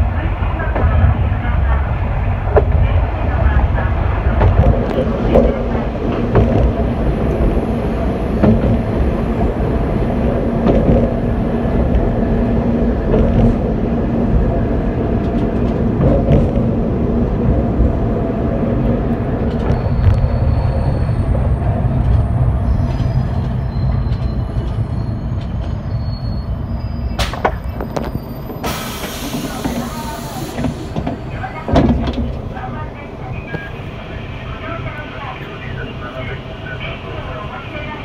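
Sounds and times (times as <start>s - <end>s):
railcar engine and wheel rumble: 0.0s - 38.0s
high brake squeals: 19.7s - 21.5s, 22.2s - 27.3s.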